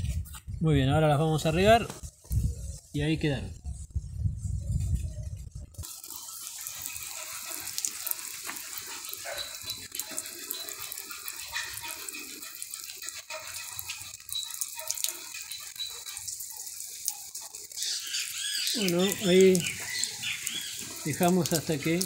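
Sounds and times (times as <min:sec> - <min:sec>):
watering can spraying onto soil: 0:05.8 - 0:22.0.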